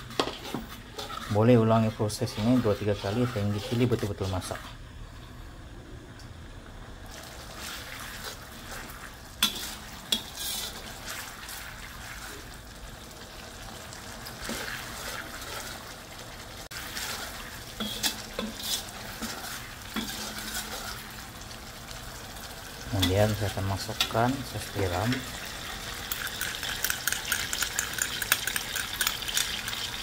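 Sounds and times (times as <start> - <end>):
metal spoon scraping wok: 0.0 - 4.8, 7.6 - 11.4, 16.8 - 21.2, 26.0 - 30.0
paste sizzling and bubbling in wok: 0.0 - 5.4, 6.9 - 30.0
spoon clinking against wok: 26.1 - 30.0.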